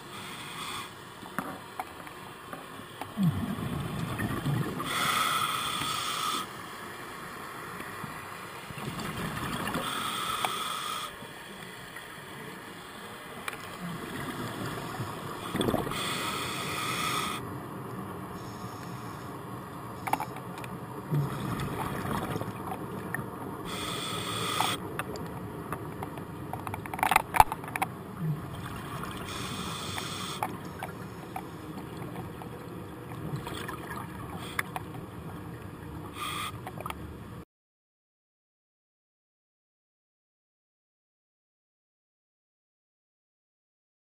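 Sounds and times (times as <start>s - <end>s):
underwater rumble: 3.1s - 5.0s, 20.7s - 37.4s.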